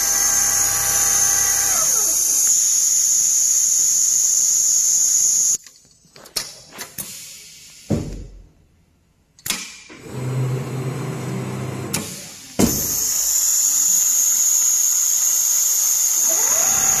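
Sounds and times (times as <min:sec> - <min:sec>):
sewing machine motor hum: 0:00.0 - 0:02.7, 0:10.0 - 0:11.9
loud hiss with high whine: 0:00.0 - 0:05.6, 0:11.9 - 0:17.0.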